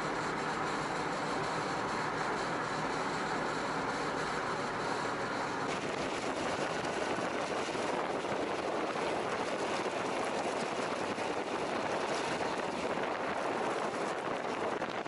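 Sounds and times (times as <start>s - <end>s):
wind: 0.0s - 15.0s.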